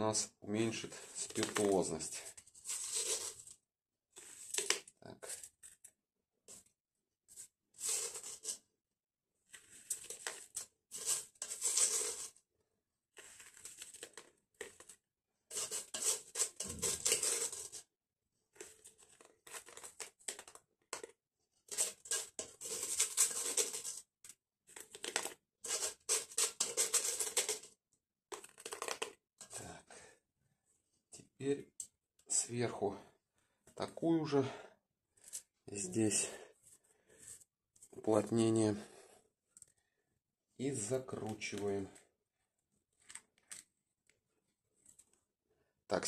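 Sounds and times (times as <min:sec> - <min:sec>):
wet charcoal granules crunching: 0:13.2 - 0:14.9, 0:15.5 - 0:17.8.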